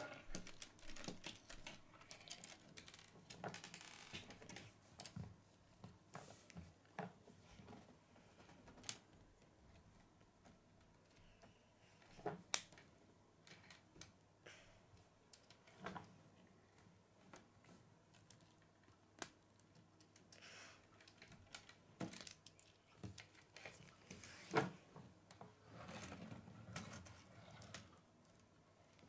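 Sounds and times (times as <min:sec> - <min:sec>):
plastic pieces snapping: 0:00.3 - 0:04.5
plastic pieces clicking together: 0:00.3 - 0:05.2.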